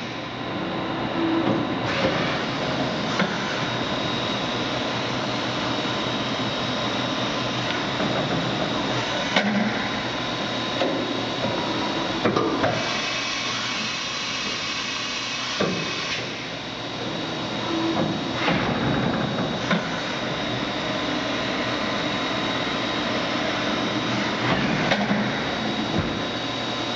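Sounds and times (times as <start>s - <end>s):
machine mechanical whir: 0.0s - 26.9s.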